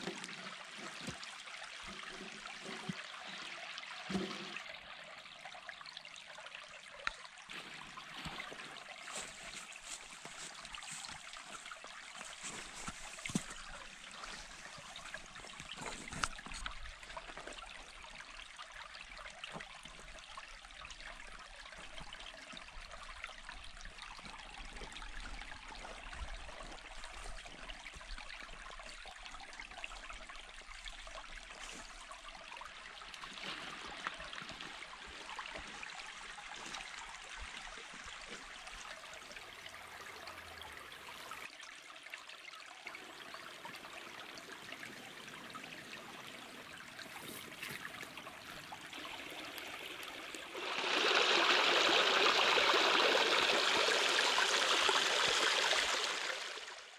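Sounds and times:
stream running over rocks: 0:00.0 - 0:56.9
water pouring down rock cascade: 0:45.4 - 0:56.9.

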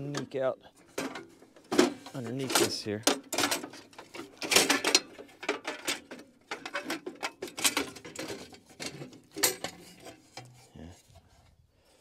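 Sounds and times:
hand tools clicking and scraping: 0:00.0 - 0:11.5.

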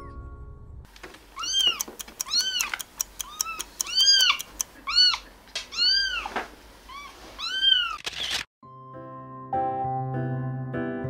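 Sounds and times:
light clicks: 0:00.9 - 0:04.8
kitten meowing: 0:01.4 - 0:06.3, 0:06.9 - 0:08.0.

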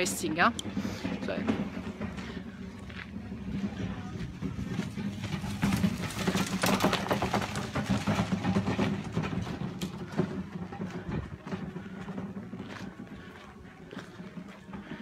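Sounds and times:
crackling and rustling: 0:04.5 - 0:13.0.

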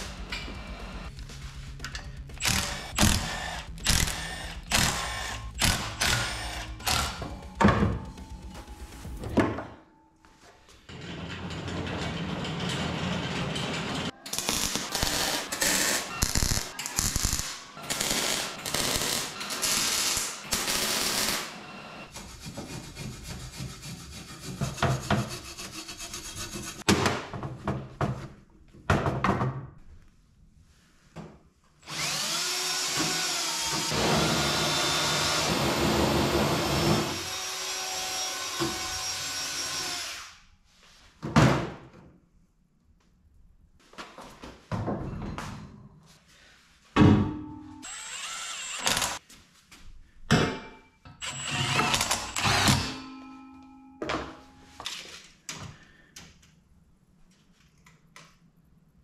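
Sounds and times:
power tool spinning: 0:02.4 - 0:07.3, 0:31.9 - 0:40.4, 0:47.8 - 0:49.2, 0:51.2 - 0:53.0
welding arc crackling: 0:14.3 - 0:21.5.

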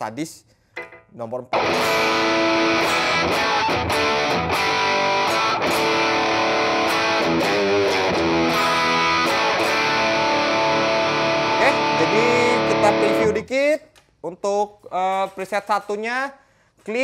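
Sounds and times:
distorted electric guitar: 0:01.6 - 0:13.5.

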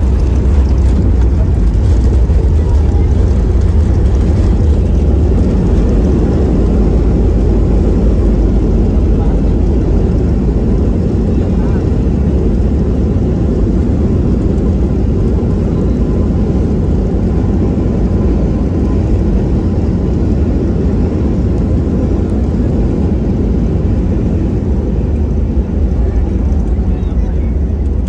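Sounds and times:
wheel and airframe rumble: 0:00.0 - 0:19.6
jet engine noise: 0:00.0 - 0:28.0.

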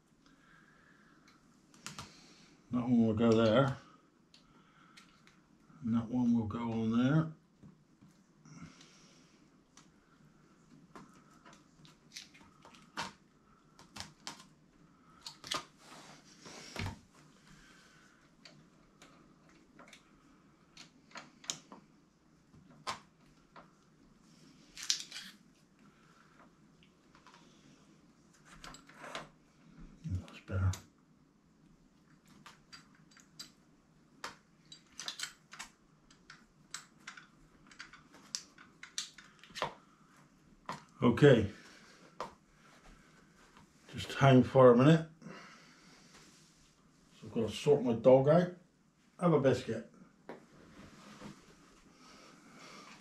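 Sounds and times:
metal parts clicking and tapping: 0:32.4 - 0:33.6, 0:34.2 - 0:39.6.

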